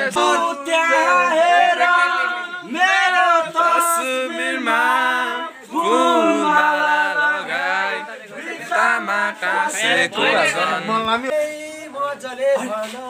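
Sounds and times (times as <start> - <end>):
men singing unaccompanied: 0.0 - 13.0.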